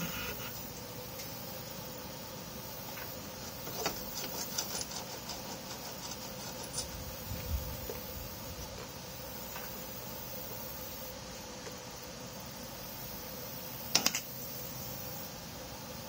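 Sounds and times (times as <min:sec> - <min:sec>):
faint hum: 0:00.0 - 0:04.0
steady background hiss: 0:00.0 - 0:16.0.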